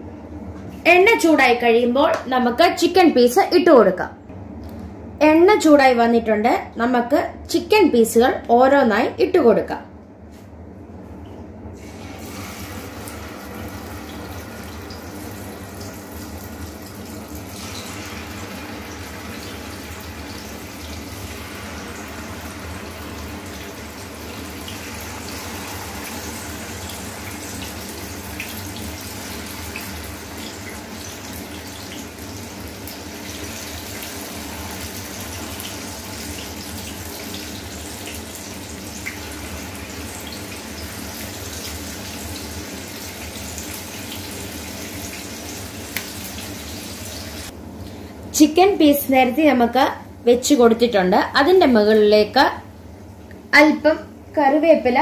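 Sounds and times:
chicken sizzling in hot oil: 11.8 - 47.5.

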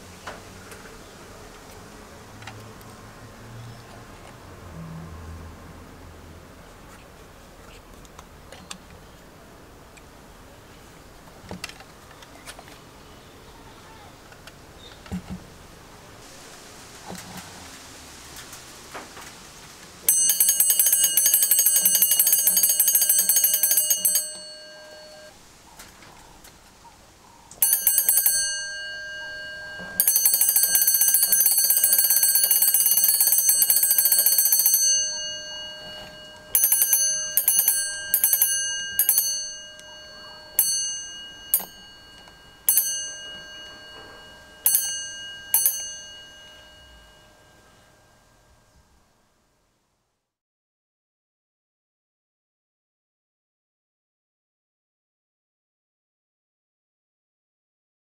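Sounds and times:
telephone bell ringing: 20.1 - 25.4, 27.6 - 47.9.

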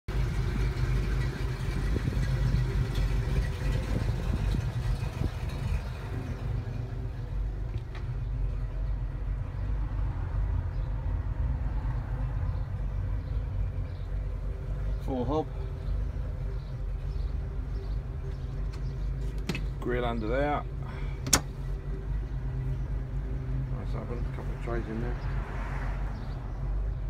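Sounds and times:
van engine idling: 0.1 - 27.0.

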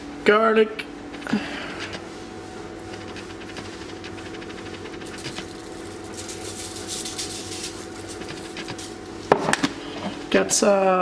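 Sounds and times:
granules rattling from spice jar: 3.0 - 9.0.

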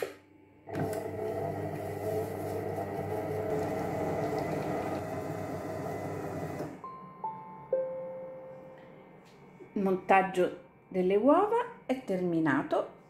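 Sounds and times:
food processor motor hum: 0.0 - 6.8.

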